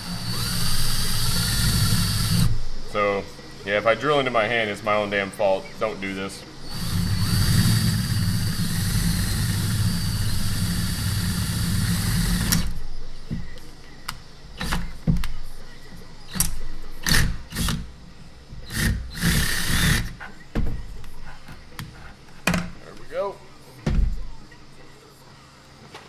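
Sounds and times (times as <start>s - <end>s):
cordless drill boring into metal: 0.0s - 2.5s, 6.7s - 12.8s, 18.7s - 20.1s.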